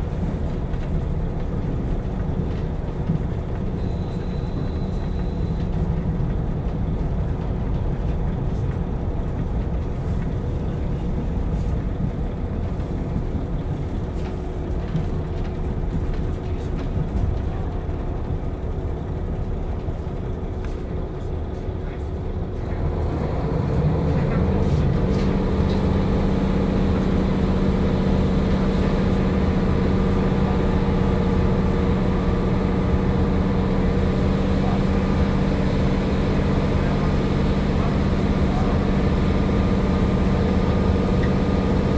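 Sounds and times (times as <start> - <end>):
diesel railcar running: 0.0 - 41.9.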